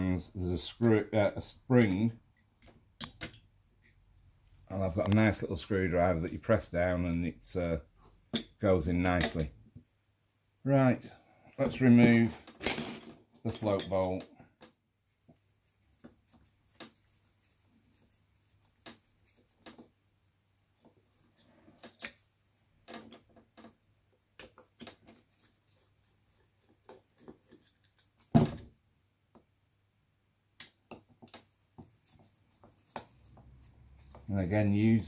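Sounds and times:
screwdriver clicks and taps on metal: 2.6s - 3.4s.

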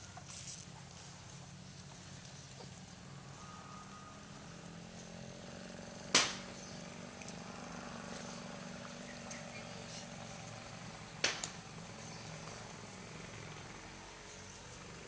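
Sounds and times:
low background hum: 0.0s - 15.0s
sharp crack: 6.0s - 6.6s, 11.2s - 11.8s.

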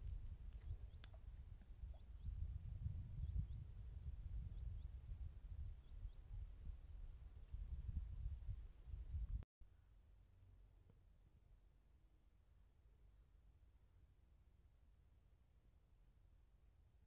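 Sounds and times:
insect trilling: 0.0s - 9.4s
low rumbling: 0.0s - 9.4s.

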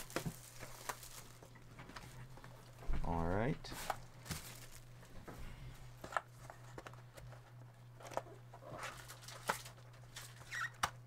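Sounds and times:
packaging rustle: 0.0s - 2.8s, 3.7s - 5.1s
low electrical hum: 0.0s - 11.0s.

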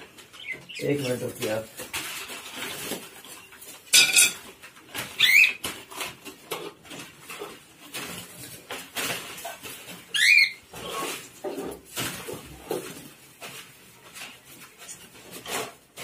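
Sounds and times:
caged birds calling: 0.0s - 6.1s, 9.3s - 11.8s.

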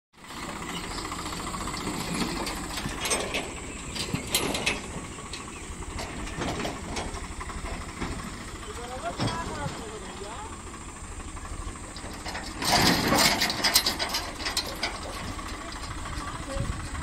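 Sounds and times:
tractor engine running under load: 0.2s - 17.0s
machine clacking and rattling: 0.4s - 17.0s.

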